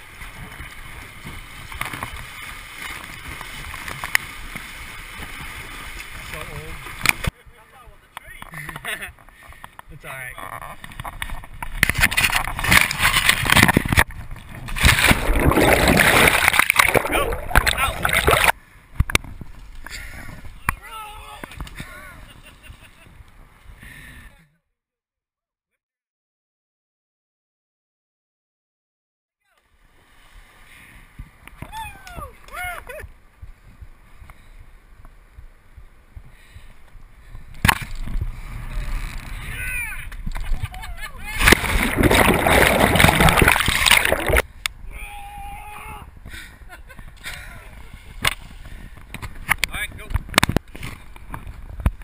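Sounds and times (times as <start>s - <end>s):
wind rustling: 0.0s - 24.2s
river water splashing: 14.5s - 18.6s, 41.4s - 44.5s
underwater rush of bubbles: 14.8s - 18.5s, 41.4s - 44.4s.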